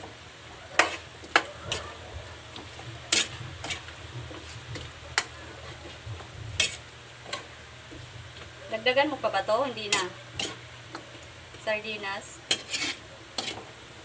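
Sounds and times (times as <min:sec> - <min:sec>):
steady low hum: 0:00.0 - 0:14.0
metal spatula scraping a wok: 0:00.8 - 0:01.9, 0:03.1 - 0:05.3, 0:06.6 - 0:07.5, 0:09.8 - 0:10.7, 0:12.4 - 0:13.7.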